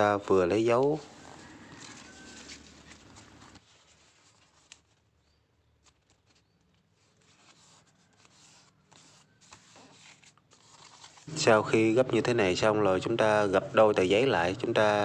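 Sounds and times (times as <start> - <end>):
paper rustling as folded: 0.4 - 11.6.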